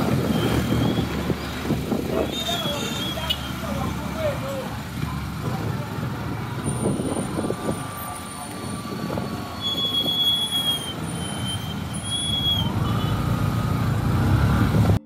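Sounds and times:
car and motorcycle engines: 0:00.0 - 0:15.0
high thin squeal: 0:06.7 - 0:13.2.

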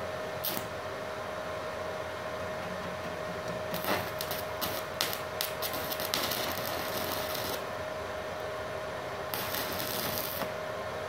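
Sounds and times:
welder hum: 0:00.0 - 0:00.8, 0:03.4 - 0:11.0
welding arc crackling: 0:00.4 - 0:00.7, 0:03.7 - 0:07.7, 0:09.3 - 0:10.6.

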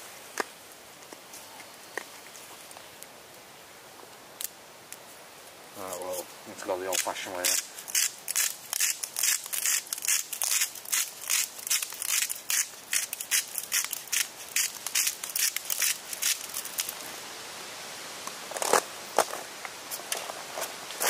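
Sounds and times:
salt crunching by hand: 0:05.9 - 0:17.0.

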